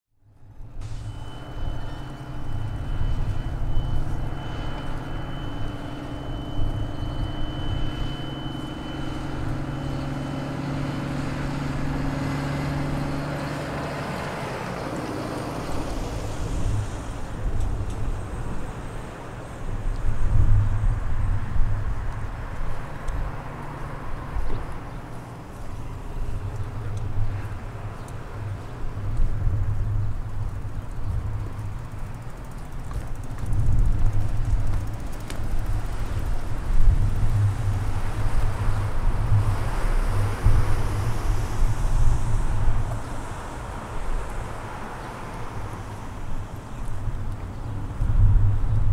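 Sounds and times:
vehicle engine running: 0.6 - 18.8, 23.2 - 48.9
vehicle passing: 0.8 - 48.2
wind on microphone: 15.6 - 23.4, 26.0 - 48.9.

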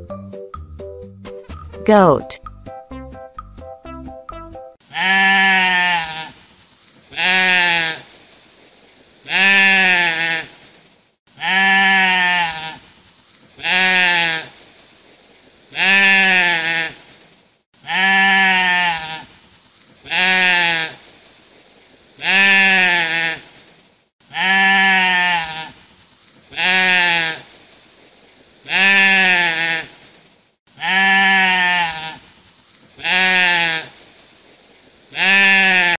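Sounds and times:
goat bleating: 4.9 - 6.3, 11.4 - 12.8, 17.8 - 19.2, 24.3 - 25.8, 30.8 - 32.2, 33.0 - 33.9, 35.2 - 36.0.

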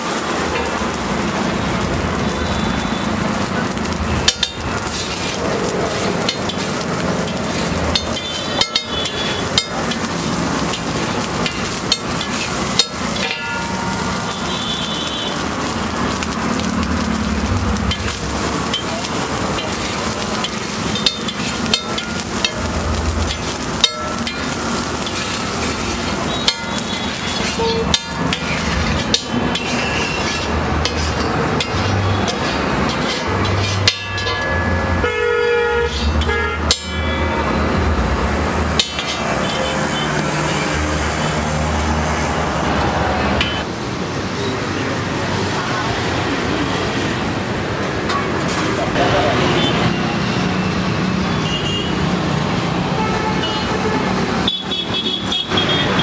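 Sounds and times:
frying sizzle: 0.0 - 56.0
metal spatula scraping griddle: 3.7 - 34.8, 35.8 - 37.0, 38.8 - 40.8.

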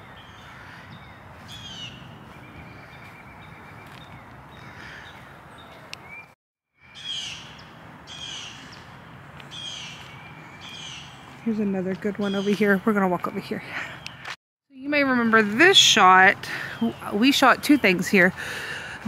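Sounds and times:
birds calling: 0.0 - 19.0.

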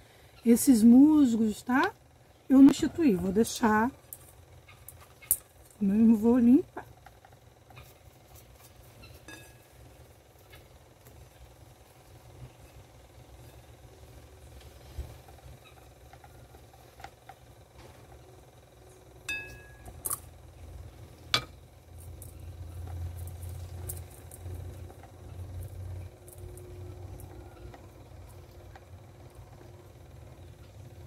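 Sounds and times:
low hum: 0.0 - 31.0
glass clink: 9.3 - 9.6, 19.3 - 19.9.

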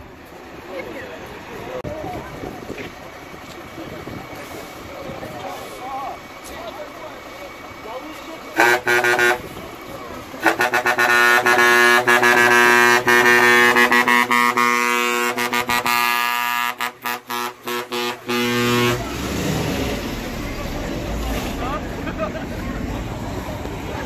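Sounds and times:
fire engine air horn blasts: 8.5 - 9.8, 10.4 - 19.2.

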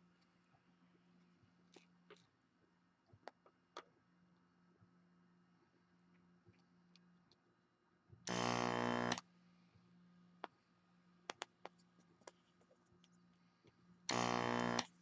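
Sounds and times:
vacuum pump humming: 8.3 - 9.2, 14.1 - 15.0.

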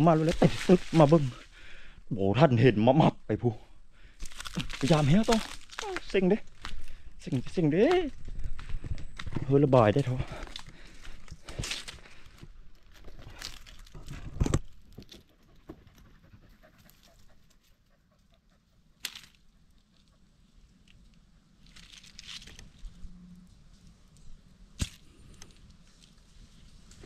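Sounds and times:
rustling in brush: 0.0 - 1.5, 25.5 - 27.0
dog panting: 15.3 - 18.9.

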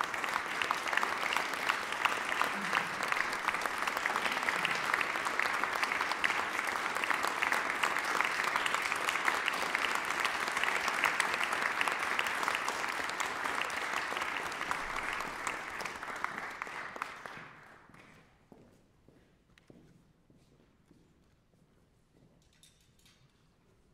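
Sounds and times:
audience applauding: 0.0 - 18.1.

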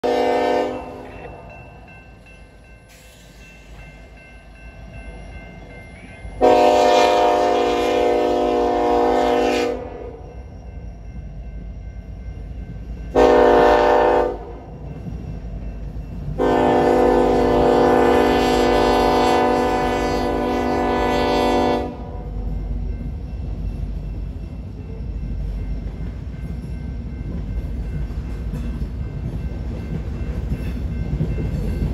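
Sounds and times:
locomotive air horn: 0.0 - 1.1, 6.4 - 10.2, 13.2 - 14.5, 16.4 - 22.2
train rumbling: 0.0 - 31.9.

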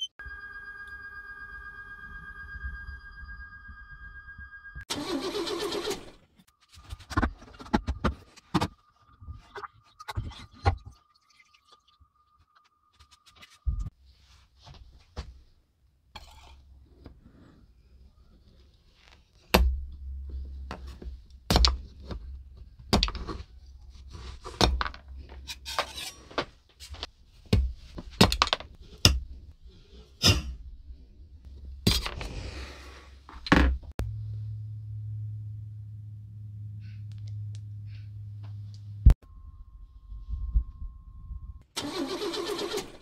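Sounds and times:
steady low hum: 34.0 - 41.7.

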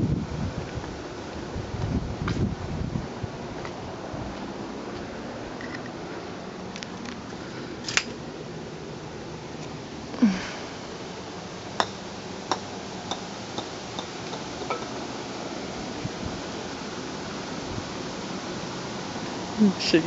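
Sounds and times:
steady outdoor hiss: 0.0 - 20.0
golf ball bouncing on pavers: 11.7 - 15.0.

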